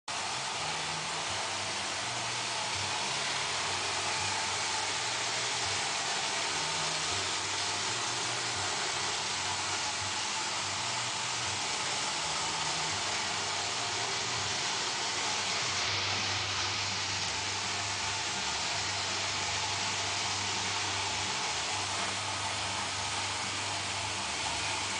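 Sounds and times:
robot vacuum whirring: 0:00.1 - 0:24.9.

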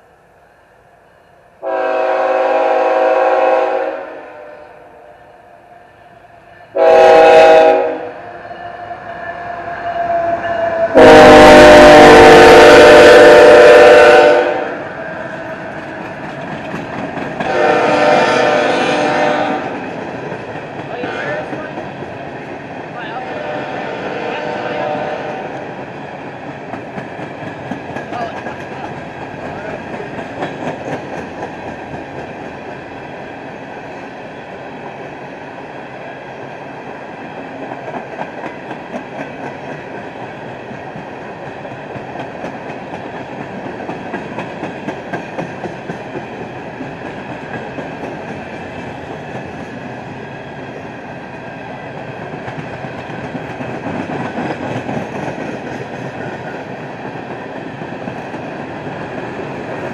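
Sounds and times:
train wheels rumbling on rail: 0:06.1 - 0:59.9
wheels clickety-clack on rail joints: 0:15.0 - 0:23.0, 0:25.2 - 0:35.1, 0:37.1 - 0:59.9.

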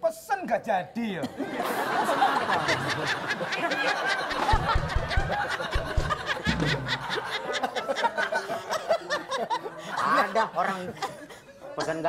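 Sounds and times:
audience laughing: 0:01.3 - 0:12.0
low thumps: 0:04.5 - 0:07.3.

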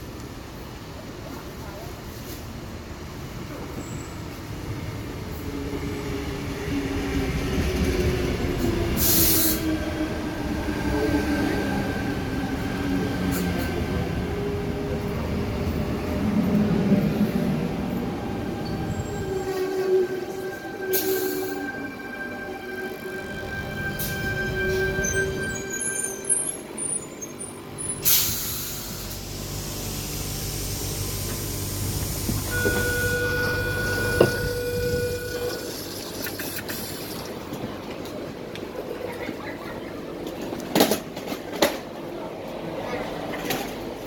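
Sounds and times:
electric train rumbling: 0:00.0 - 0:44.0
air hiss bursts: 0:09.0 - 0:09.6, 0:28.0 - 0:32.6.

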